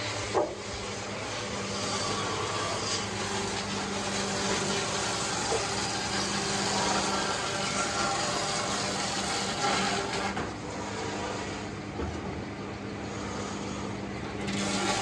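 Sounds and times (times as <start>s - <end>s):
machinery humming: 0.0s - 15.0s.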